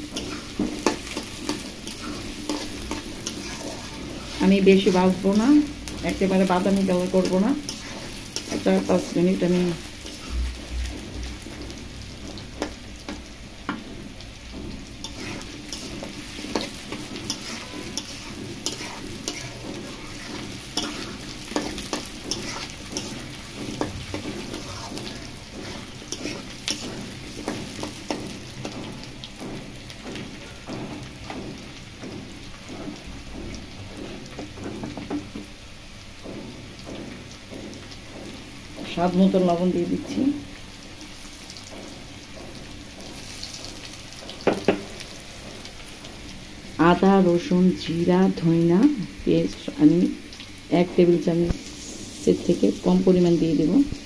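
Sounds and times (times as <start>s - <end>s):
spatula scraping a pan: 0.0s - 35.6s, 40.6s - 46.3s
vegetables sizzling in oil: 0.0s - 54.0s.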